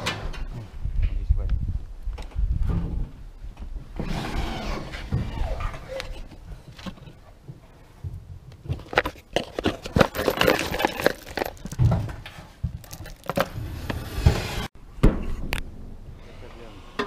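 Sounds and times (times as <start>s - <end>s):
screws clinking in box: 9.4s - 11.8s.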